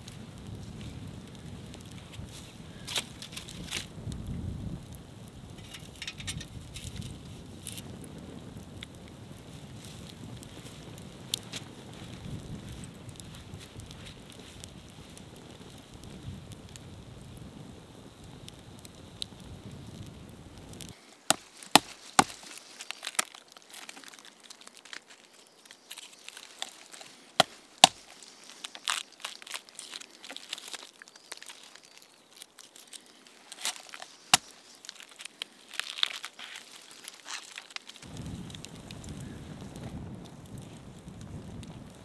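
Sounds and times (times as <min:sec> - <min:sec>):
campfire crackling: 0:00.0 - 0:42.0
blade chopping wood: 0:21.3 - 0:22.5, 0:27.4 - 0:28.1.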